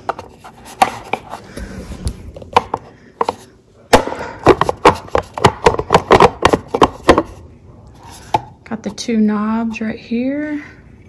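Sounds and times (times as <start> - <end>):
plastic cup holder knocking: 4.0 - 7.4.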